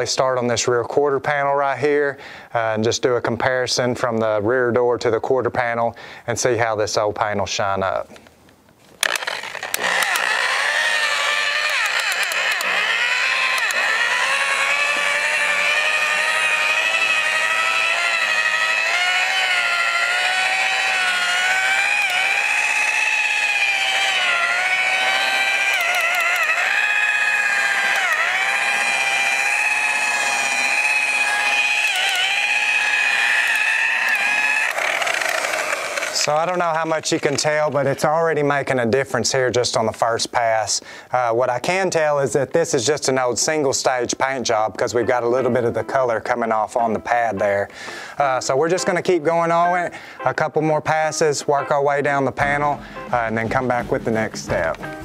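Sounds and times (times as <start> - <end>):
rotary buffer motor whine: 9.0 - 38.0.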